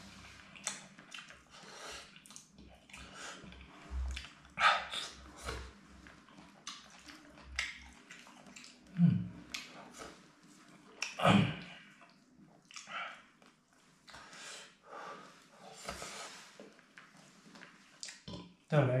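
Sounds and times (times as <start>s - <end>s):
man chewing: 0.1s - 14.4s.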